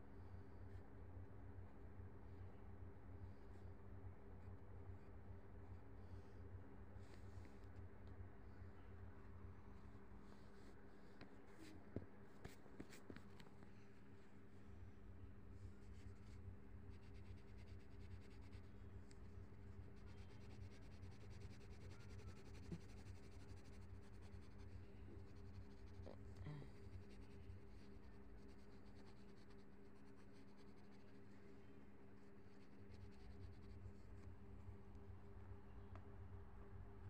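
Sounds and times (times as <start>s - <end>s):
steady low hum: 0.0s - 37.0s
pencil scratching on paper: 15.8s - 18.8s, 19.7s - 26.0s, 26.7s - 31.3s, 32.2s - 34.2s.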